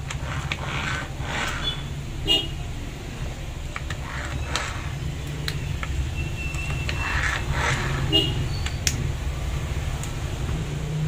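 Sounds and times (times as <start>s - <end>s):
hand tools clicking on metal: 0.0s - 1.6s.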